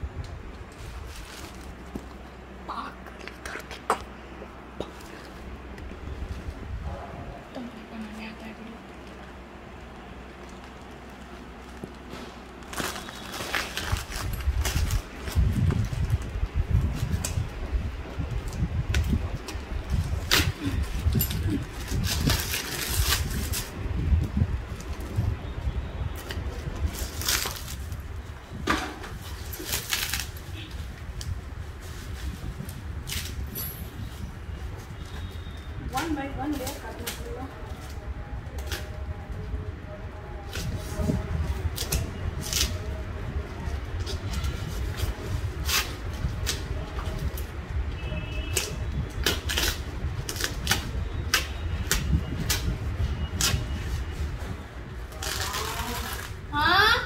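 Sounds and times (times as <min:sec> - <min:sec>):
stiff plastic rustling: 0:00.6 - 0:03.9, 0:07.6 - 0:39.6, 0:48.7 - 0:56.5
plastic sack rustling: 0:00.7 - 0:02.3, 0:10.2 - 0:17.2
plastic sack tearing: 0:10.7 - 0:16.4, 0:26.8 - 0:28.1, 0:29.1 - 0:30.7, 0:55.1 - 0:56.4.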